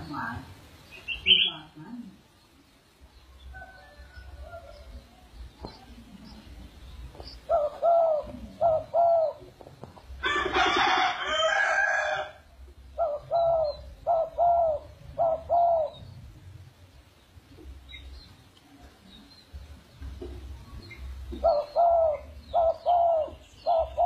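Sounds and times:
rooster crowing: 3.5s - 5.0s, 10.2s - 12.4s
pigeon cooing: 7.4s - 9.6s, 12.9s - 16.0s, 20.7s - 24.0s.

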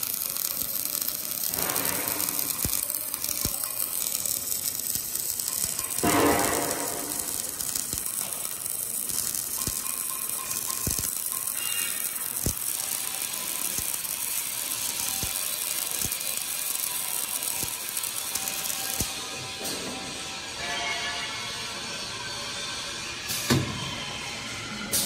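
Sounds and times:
welding arc crackling: 0.0s - 19.7s.

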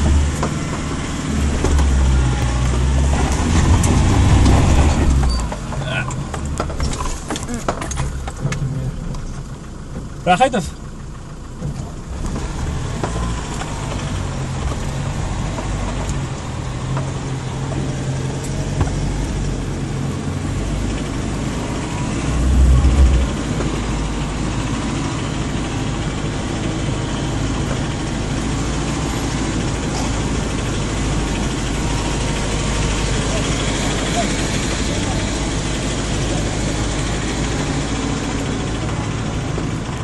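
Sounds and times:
diesel engine running at low revs: 0.0s - 40.0s.

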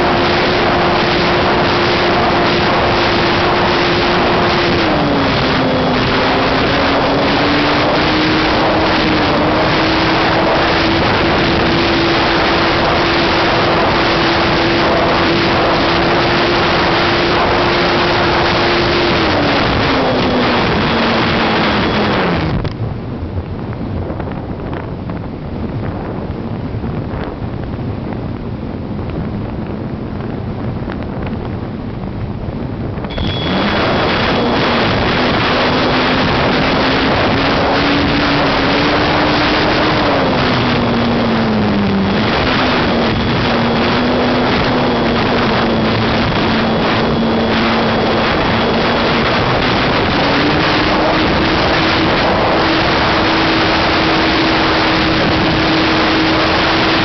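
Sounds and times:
wind rush: 0.0s - 57.0s
electric motor and propeller: 33.0s - 57.0s.

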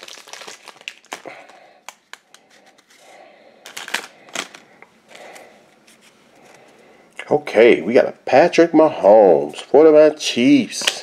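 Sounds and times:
wrapper rustling: 0.0s - 6.2s.

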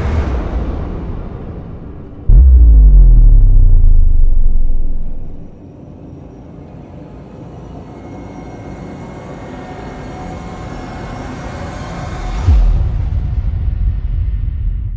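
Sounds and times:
deep boom: 2.2s - 5.5s
low rumbling drone: 2.2s - 5.5s.

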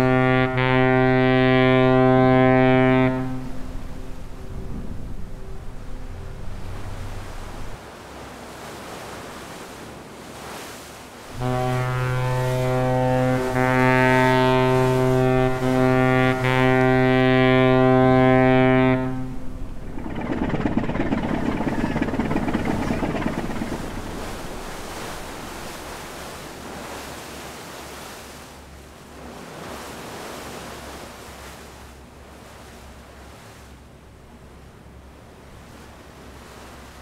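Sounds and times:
ship's horn blast: 0.0s - 7.8s, 11.3s - 27.0s
waves washing: 0.0s - 37.0s.

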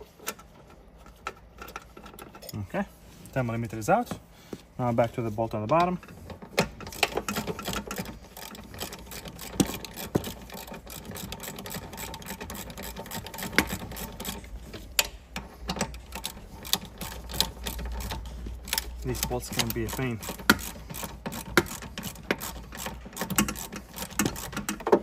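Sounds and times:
tool knocking against bolt: 5.7s - 14.4s, 15.0s - 25.0s
ratchet wrench clicking: 6.8s - 25.0s.

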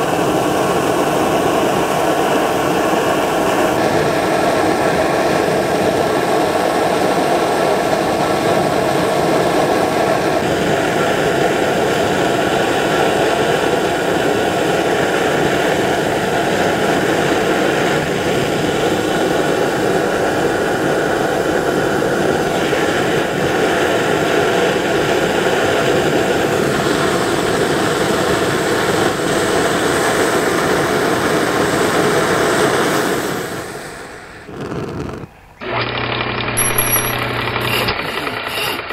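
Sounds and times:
pressure stove rushing: 33.1s - 38.9s.

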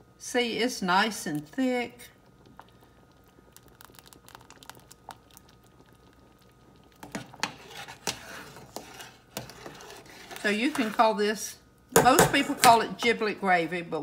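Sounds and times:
spoon scraping saucepan: 7.0s - 11.2s.

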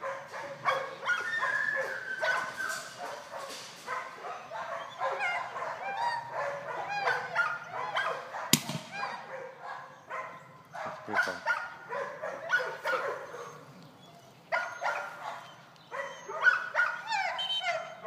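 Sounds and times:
dog whining and yipping: 0.7s - 8.2s, 8.9s - 10.1s, 12.4s - 18.0s.

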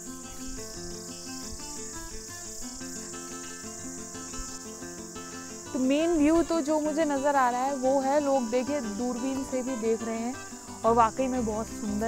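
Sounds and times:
insect chorus: 0.0s - 12.0s
simple background melody: 5.7s - 12.0s.

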